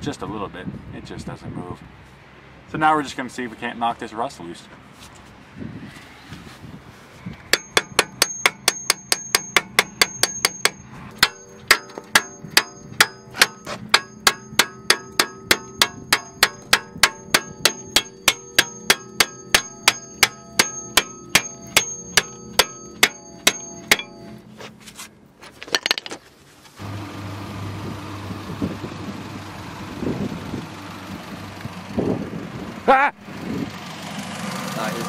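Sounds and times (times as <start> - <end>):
hammer blows on metal brake disc: 7.5 - 24.5.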